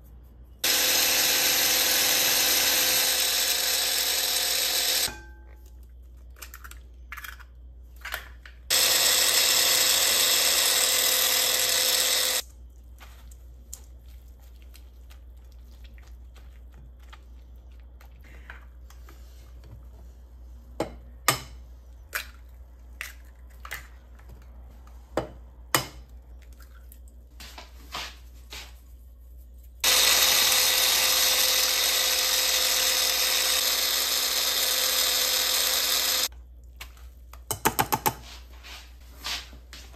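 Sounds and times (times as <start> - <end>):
kitchen appliance motor running: 0.6 - 5.2, 8.7 - 12.5, 29.8 - 36.3.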